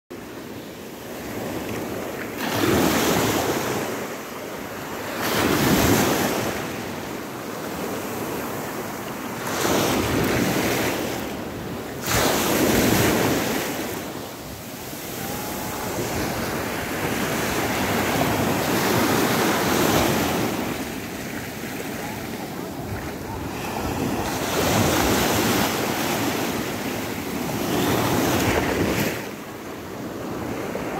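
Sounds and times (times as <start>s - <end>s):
waves breaking on pebble shore: 12.0s - 29.3s.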